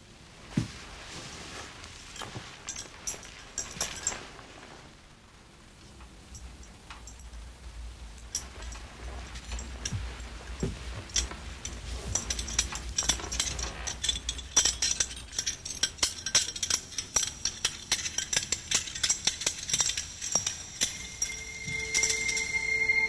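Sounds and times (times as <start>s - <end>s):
rattling and clinking: 2.1s - 4.3s, 8.3s - 23.0s.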